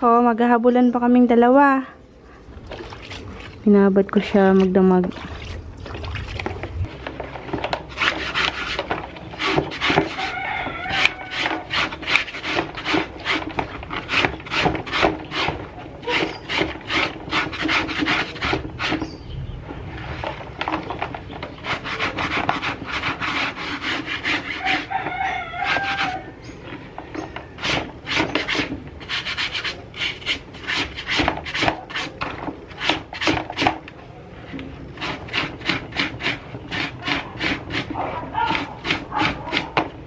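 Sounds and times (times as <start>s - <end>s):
scrub brush scrubbing wet fabric: 2.6s - 3.7s, 4.3s - 19.0s, 21.5s - 26.2s, 35.1s - 39.8s.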